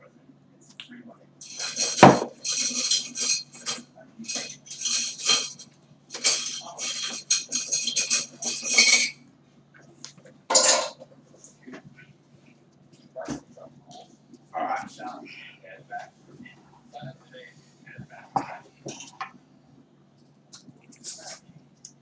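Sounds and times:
cutlery and dishes clattering: 0:01.4 - 0:09.2, 0:10.5 - 0:11.0.

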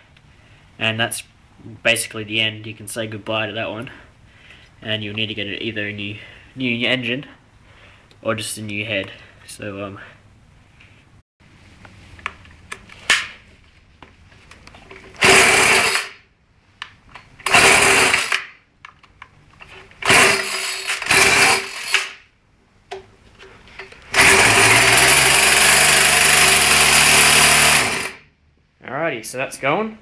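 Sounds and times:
small engine cranking and sputtering: 0:15.2 - 0:16.2, 0:17.4 - 0:18.5, 0:20.0 - 0:22.2, 0:24.1 - 0:28.3
small engine running: 0:20.0 - 0:22.1, 0:24.1 - 0:28.2.

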